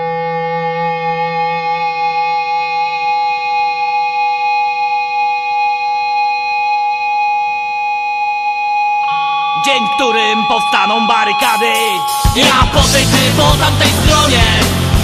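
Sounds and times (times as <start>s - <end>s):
rock band sustained chord: 9.0s - 15.0s.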